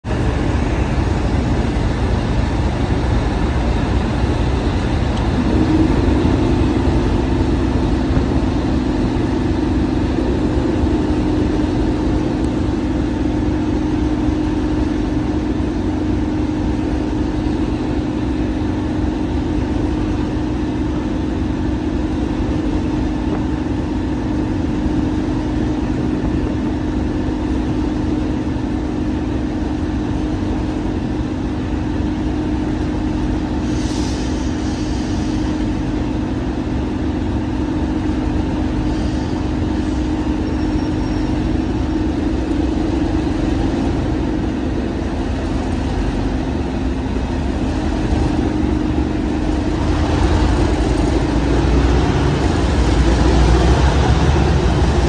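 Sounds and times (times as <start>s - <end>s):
train rumbling: 0.0s - 55.0s
steady two-note hum: 0.1s - 29.0s.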